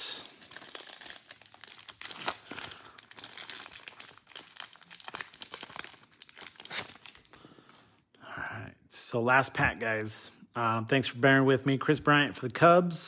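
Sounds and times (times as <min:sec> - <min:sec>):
foil wrapper crinkling and tearing: 0:00.1 - 0:07.7.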